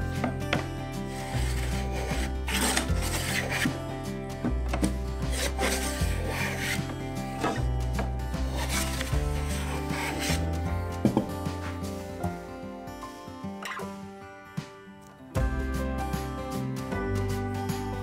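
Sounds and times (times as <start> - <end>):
hand plane shaving wood: 0.0 - 12.2
background music with bass: 0.0 - 18.0.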